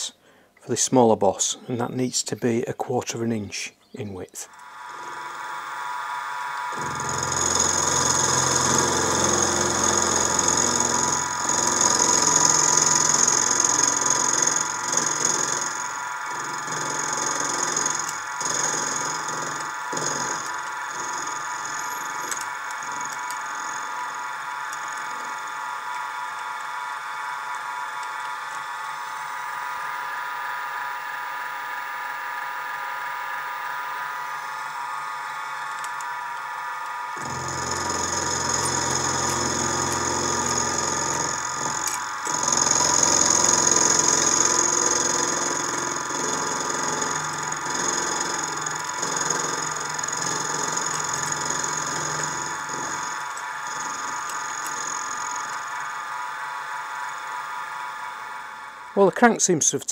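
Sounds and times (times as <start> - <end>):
end mill cutting metal: 4.5 - 59.3
mill motor whine: 4.5 - 59.5.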